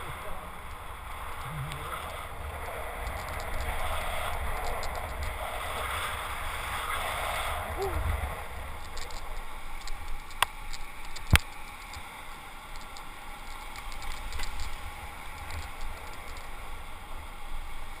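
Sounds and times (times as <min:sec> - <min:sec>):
wind buffeting microphone: 0:00.0 - 0:11.4
kite buggy rolling on wet sand: 0:00.0 - 0:18.0
sharp clicks: 0:08.8 - 0:12.1, 0:12.7 - 0:14.8.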